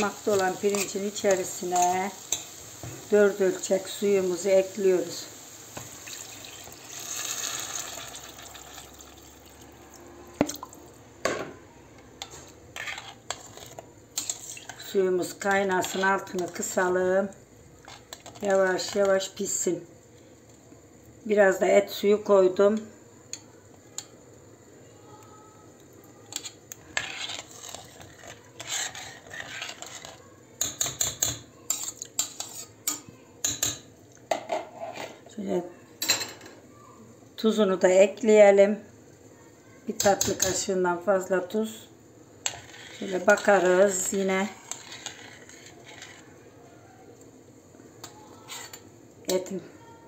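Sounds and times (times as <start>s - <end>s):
metal spoon stirring in a pot: 0.0s - 4.7s, 12.0s - 17.0s, 17.8s - 19.4s, 26.2s - 35.3s, 42.4s - 46.6s, 47.9s - 49.6s
water pouring into a pot: 5.4s - 10.9s.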